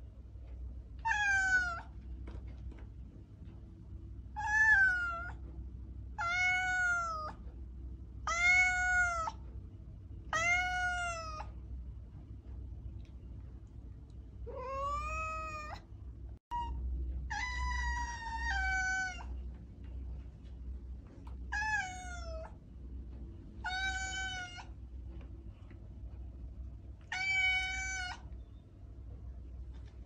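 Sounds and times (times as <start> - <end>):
steady low hum: 0.0 - 30.0
cat meowing: 1.0 - 1.9, 4.4 - 5.4, 6.2 - 7.4, 8.2 - 9.4, 10.3 - 11.5, 14.5 - 15.8, 16.5 - 19.4, 21.5 - 22.6, 23.6 - 24.8, 27.0 - 28.3.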